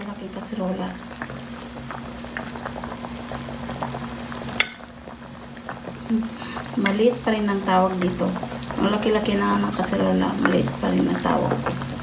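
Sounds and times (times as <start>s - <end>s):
soup bubbling in a pot: 0.0s - 12.0s
metal clink on pot: 4.6s - 4.9s.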